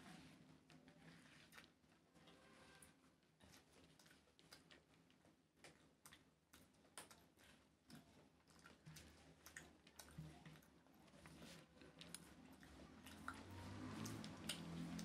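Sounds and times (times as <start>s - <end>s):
fingers mixing rice clicks: 5.6s - 15.0s.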